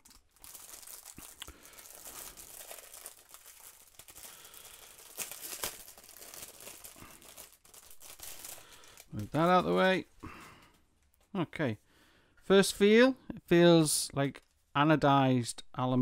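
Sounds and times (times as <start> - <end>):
plastic bag crinkling: 0.0 - 10.1.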